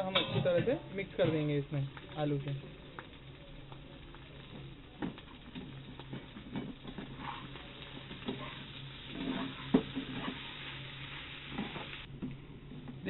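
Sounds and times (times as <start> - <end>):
spatula scraping frying pan: 5.0 - 12.1.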